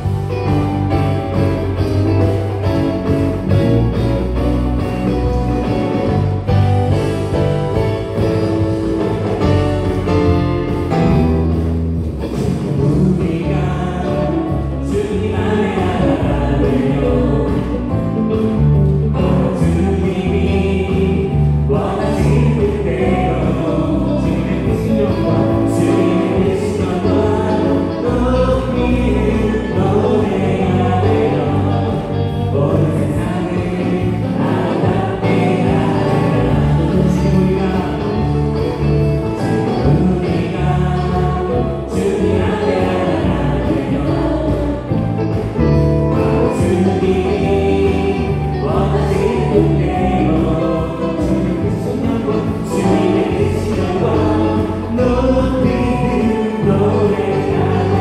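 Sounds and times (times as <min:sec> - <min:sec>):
bass guitar: 0:00.0 - 0:58.0
drums: 0:00.0 - 0:58.0
keyboard: 0:00.0 - 0:58.0
group singing: 0:12.3 - 0:58.0.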